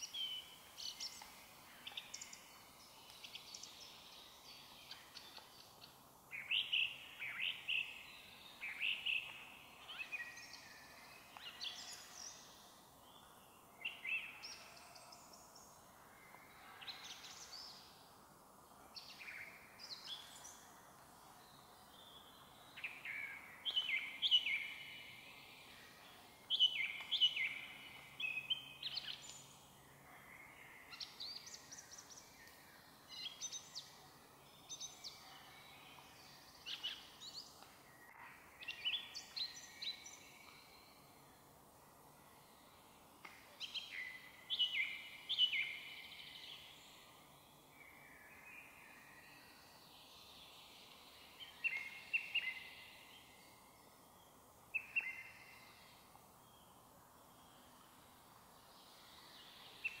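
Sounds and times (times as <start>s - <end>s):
song thrush singing: 0.0s - 18.1s, 18.9s - 41.5s, 42.2s - 60.0s.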